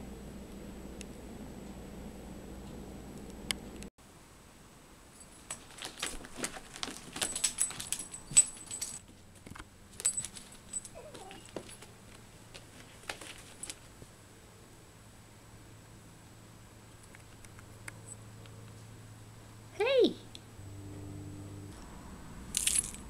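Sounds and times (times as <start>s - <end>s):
collar tag jingling: 5.2s - 9.2s, 9.9s - 12.0s, 22.6s - 23.0s.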